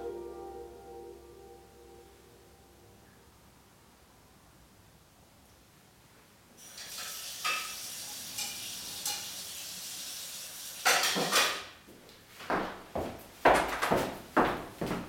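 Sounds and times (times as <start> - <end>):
steady hiss: 3.8 - 11.8
dishware clinking: 6.9 - 7.8, 10.8 - 11.6.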